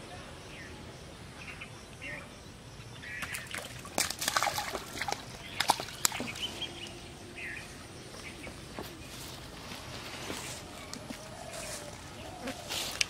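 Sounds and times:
fish splashing in water: 3.2 - 7.0.

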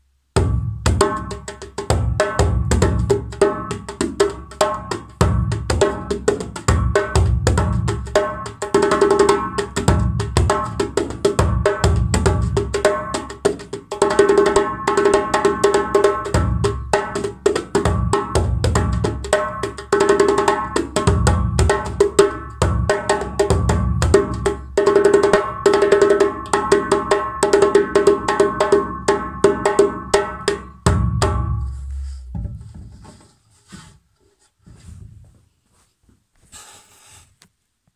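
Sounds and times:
djembe played with hands: 0.4 - 33.1.

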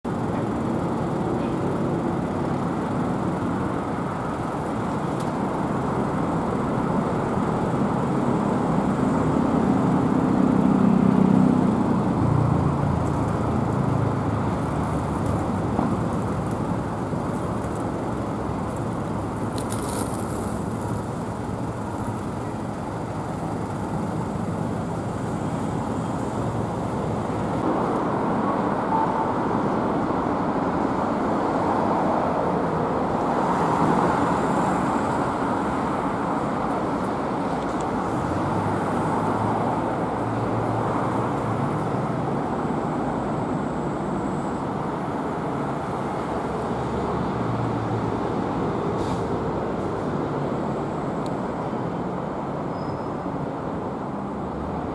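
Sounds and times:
traffic engines and tyres: 0.0 - 54.9
short hiss: 49.0 - 49.3.

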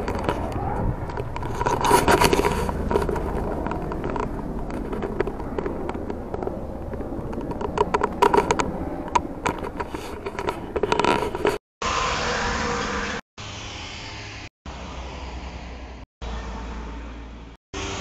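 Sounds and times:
sharp clicks and scrapes: 0.0 - 11.6
helicopter flying: 0.0 - 13.2.

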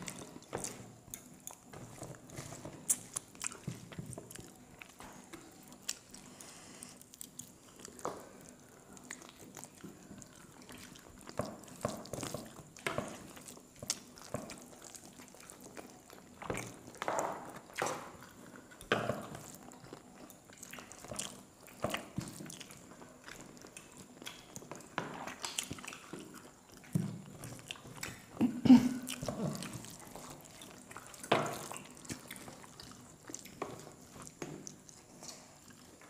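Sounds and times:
chewing: 0.0 - 36.0
food mixed by hand smacks: 23.7 - 28.4.

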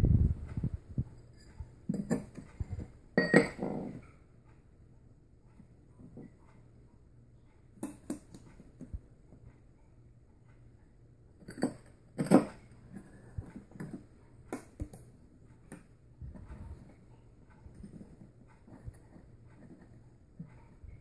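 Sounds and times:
clicks taps and scrapes of handling: 1.3 - 4.0, 7.8 - 9.6, 11.4 - 21.0.

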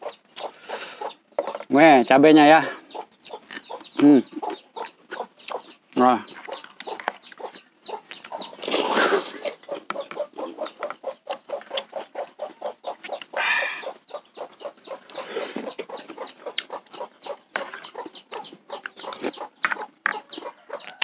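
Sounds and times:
chickens clucking: 0.0 - 21.0
wet chewing: 3.0 - 13.4, 14.1 - 21.0
slurping: 8.3 - 10.5.

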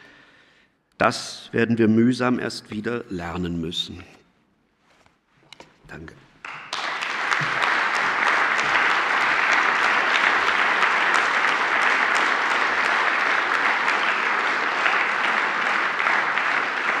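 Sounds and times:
audience applauding: 6.4 - 17.0.

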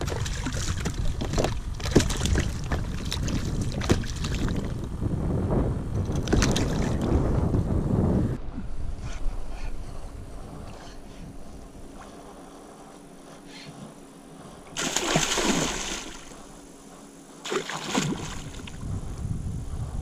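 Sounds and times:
fish thrashing and splashing: 14.8 - 16.4, 17.5 - 18.7.

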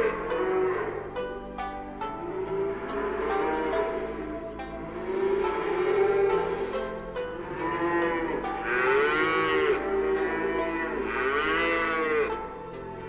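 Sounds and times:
cattle mooing: 0.0 - 1.0, 4.9 - 6.7, 7.4 - 12.3
soft background music: 0.0 - 13.0.

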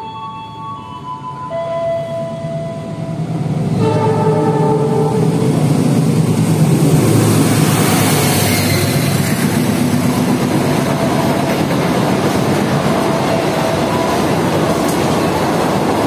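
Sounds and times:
diesel locomotive passing: 0.0 - 16.0
wheels rushing on rails: 1.9 - 16.0.

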